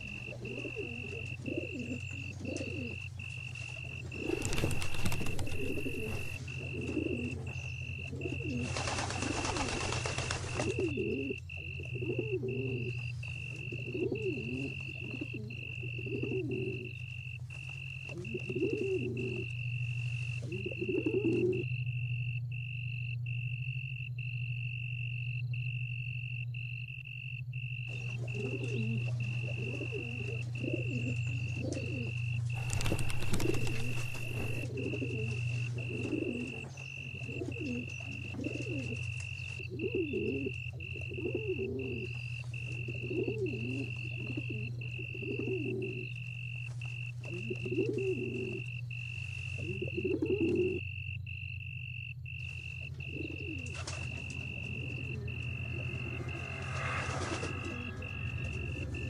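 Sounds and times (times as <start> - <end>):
pigeons cooing: 0.0 - 21.8, 27.9 - 51.1, 52.4 - 59.0
low droning horror music: 0.0 - 59.0
steady high tone: 52.8 - 59.0
brief rushing noise: 55.6 - 59.0.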